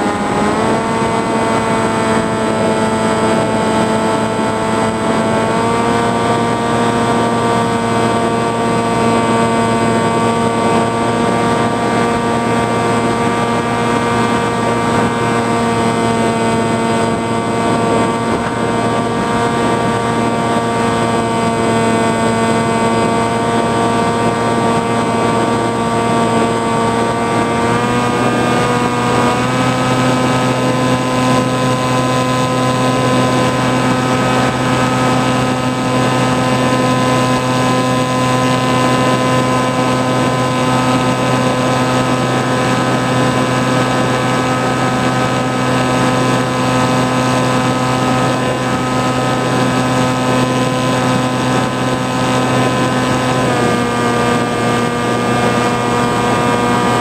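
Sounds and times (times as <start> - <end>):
motor and propeller droning: 0.0 - 57.0.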